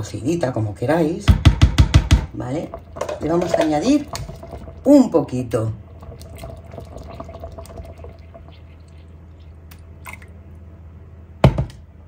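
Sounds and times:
steady low hum: 0:00.0 - 0:12.0
milk pouring and splashing: 0:02.4 - 0:10.6.

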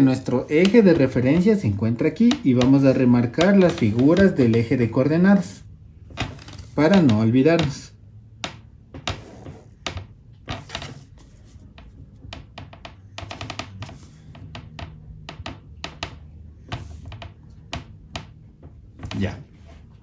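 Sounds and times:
plastic ruler tapping on notebook: 0:00.3 - 0:05.0, 0:06.1 - 0:19.2
ballpoint pen scratching: 0:09.1 - 0:09.8.

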